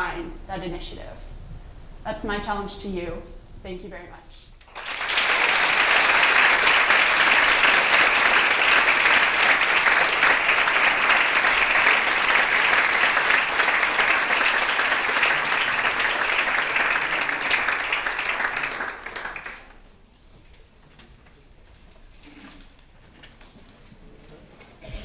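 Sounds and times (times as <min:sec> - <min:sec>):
audience applauding: 0:04.6 - 0:19.8.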